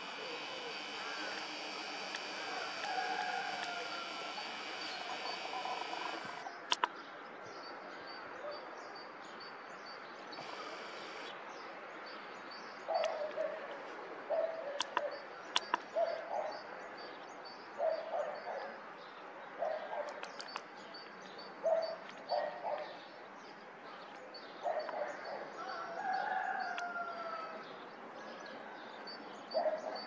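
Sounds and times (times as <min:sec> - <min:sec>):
sharp clicks: 0:00.0 - 0:06.9, 0:10.4 - 0:11.3, 0:14.8 - 0:15.9
small birds chirping: 0:00.0 - 0:07.7, 0:09.8 - 0:13.5, 0:14.3 - 0:25.6.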